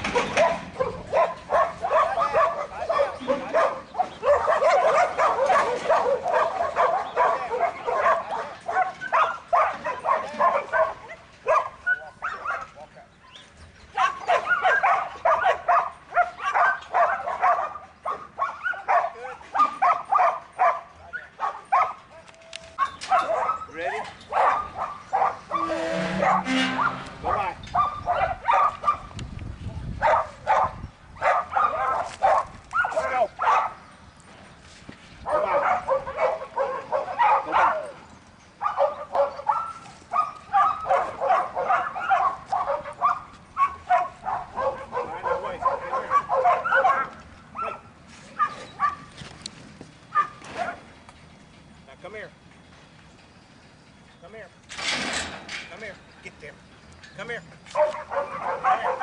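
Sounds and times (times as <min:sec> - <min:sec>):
dog barking: 0:00.0 - 0:12.9, 0:13.9 - 0:22.2, 0:22.8 - 0:29.1, 0:30.0 - 0:33.8, 0:35.2 - 0:38.0, 0:38.6 - 0:49.1, 0:50.1 - 0:50.9, 0:57.7 - 0:59.0.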